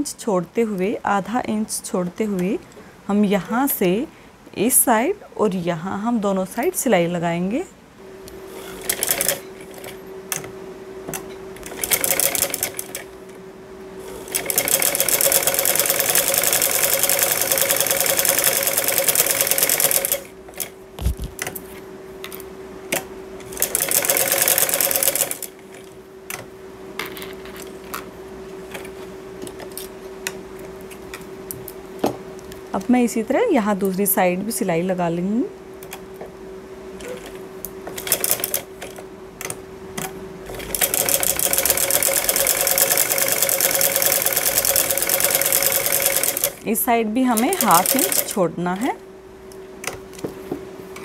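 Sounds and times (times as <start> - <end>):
sewing machine stitching: 14.3 - 20.3, 40.5 - 46.6, 47.3 - 48.4.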